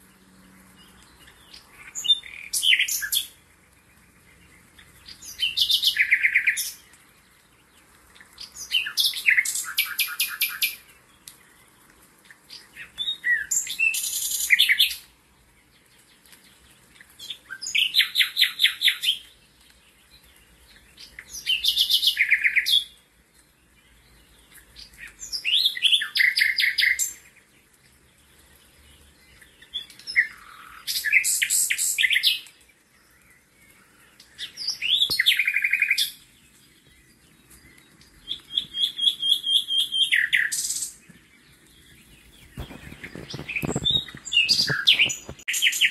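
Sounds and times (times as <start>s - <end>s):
songbird trilling: 1.1s - 3.4s, 4.8s - 6.8s, 33.8s - 36.2s, 36.8s - 41.0s, 41.8s - 45.9s.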